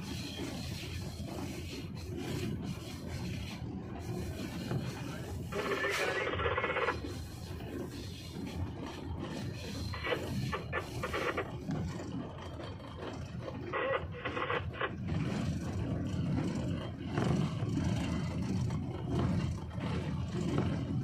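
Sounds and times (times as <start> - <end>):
locomotive engine rumbling: 0.0 - 21.0.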